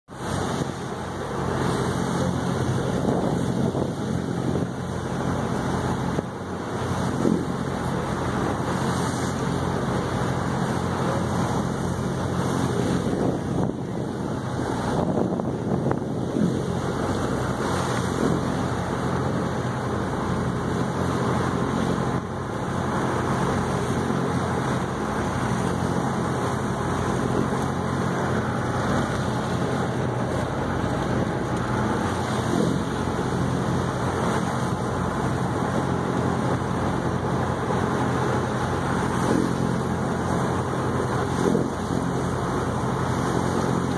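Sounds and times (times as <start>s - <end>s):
water rushing along hull: 0.0s - 43.9s
boat engine humming: 0.1s - 43.9s
wind on microphone: 1.8s - 6.4s, 11.5s - 19.6s.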